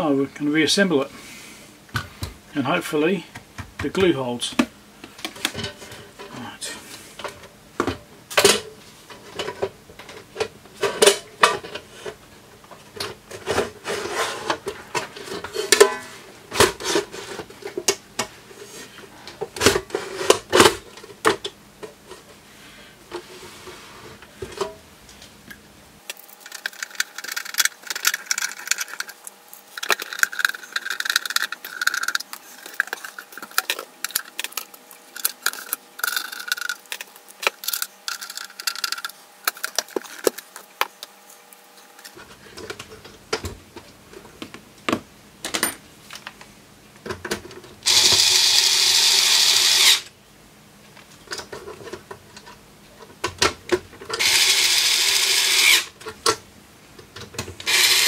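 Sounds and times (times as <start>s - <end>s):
power screwdriver burst: 47.9s - 50.1s, 54.2s - 55.9s, 57.7s - 58.0s.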